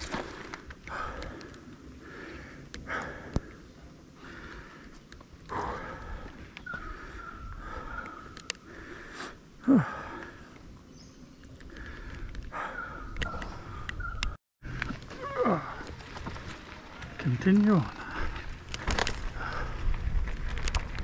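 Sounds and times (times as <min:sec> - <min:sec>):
person breathing hard: 0:00.0 - 0:10.6, 0:11.6 - 0:14.0, 0:19.2 - 0:20.0.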